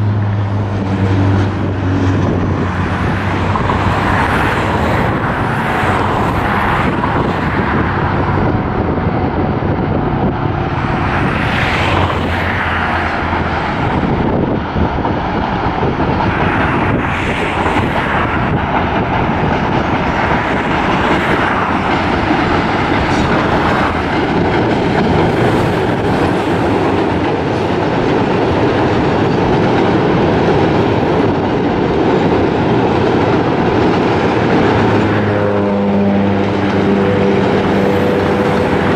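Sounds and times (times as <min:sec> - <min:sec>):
diesel locomotive engine running: 0:00.0 - 0:38.9
train wheels rolling on rails: 0:00.2 - 0:35.4, 0:36.3 - 0:38.9.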